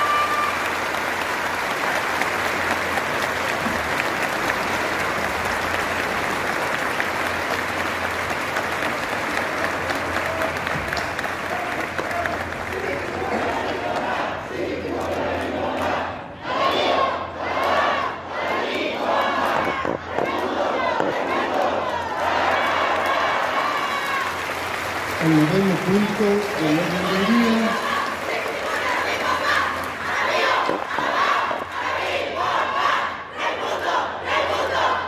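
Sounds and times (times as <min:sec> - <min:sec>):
large crowd applauding: 0:00.0 - 0:14.1, 0:21.0 - 0:31.8
crowd chanting: 0:12.8 - 0:23.8, 0:25.2 - 0:35.0.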